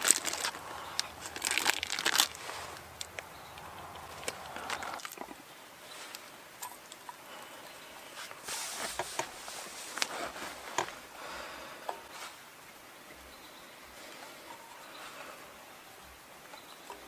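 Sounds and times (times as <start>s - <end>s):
food handling in a pot: 0.0s - 5.4s
soft rustling: 0.0s - 7.1s, 8.0s - 12.6s.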